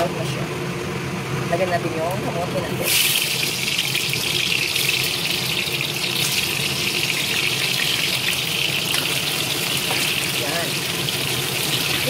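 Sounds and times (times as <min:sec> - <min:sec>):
steady low hum: 0:00.0 - 0:12.0
food sizzling in oil: 0:02.8 - 0:12.0.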